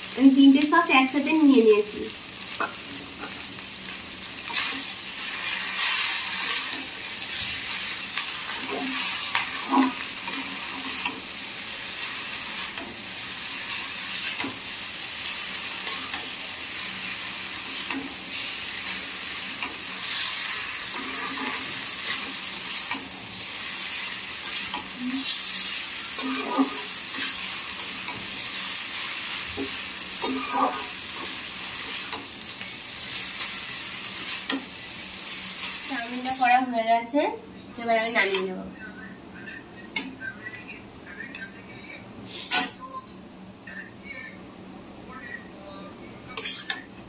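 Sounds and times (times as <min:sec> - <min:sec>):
noodles sizzling in a wok: 0:00.0 - 0:41.4
spatula scraping a wok: 0:04.4 - 0:32.4.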